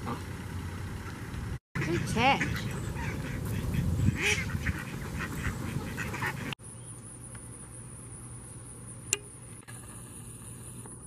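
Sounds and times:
ducks quacking: 0.0 - 0.3, 1.8 - 6.6.

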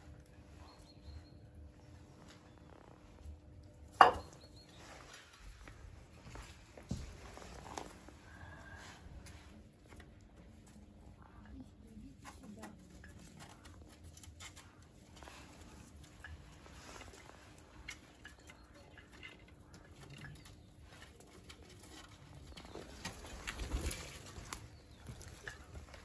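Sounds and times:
pigeons pecking taps and clicks: 9.8 - 26.0.

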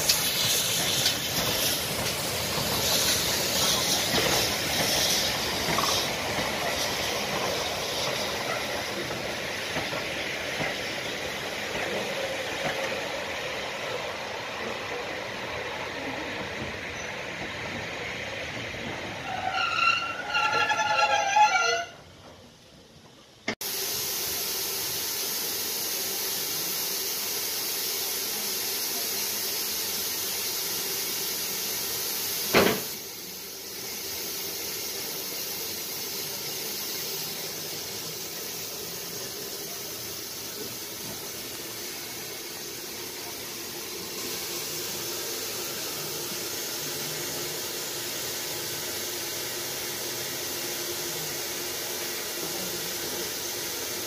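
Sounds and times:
steam hissing: 0.0 - 21.1, 23.6 - 54.0.

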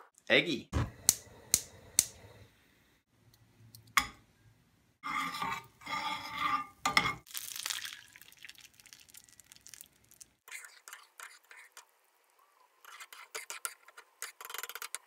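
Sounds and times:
spatula scraping a pan: 5.0 - 7.3
butter sizzling in a pan: 7.3 - 10.4.

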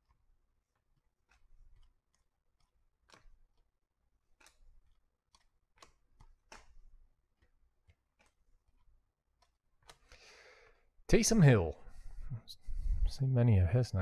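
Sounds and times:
trading cards clicking: 1.2 - 10.2.

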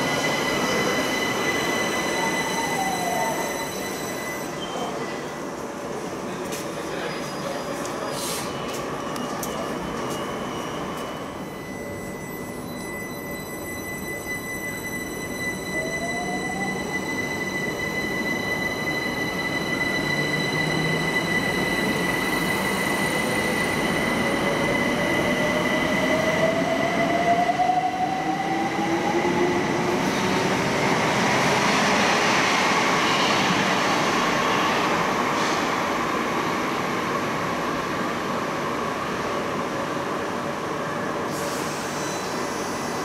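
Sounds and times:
steady high tone: 0.0 - 5.0, 10.3 - 29.3.

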